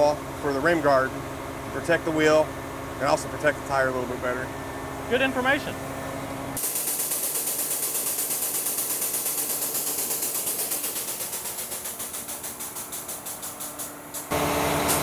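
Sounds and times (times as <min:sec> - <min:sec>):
pump pulsing hiss: 0:06.6 - 0:15.0.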